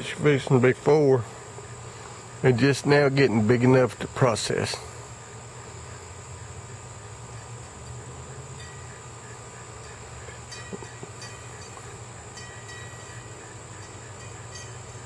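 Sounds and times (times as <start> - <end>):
crickets droning: 0.0 - 15.0.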